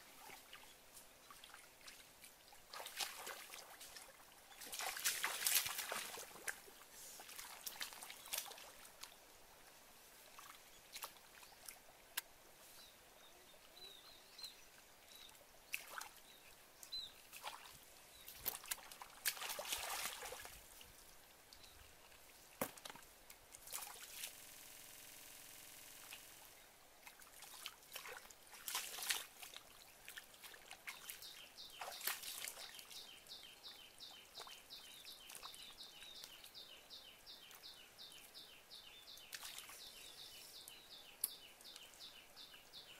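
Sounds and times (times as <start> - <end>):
splashing in muddy water: 1.3 - 9.1, 15.7 - 16.2, 17.3 - 20.8, 23.6 - 24.6, 27.0 - 33.1.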